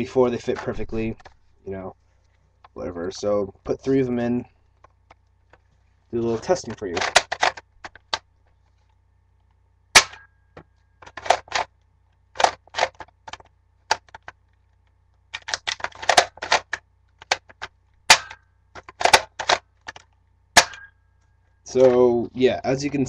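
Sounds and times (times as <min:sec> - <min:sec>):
toy blaster plastic clacks: 0:06.9 - 0:08.2, 0:11.0 - 0:11.7, 0:12.4 - 0:14.3, 0:15.4 - 0:20.0.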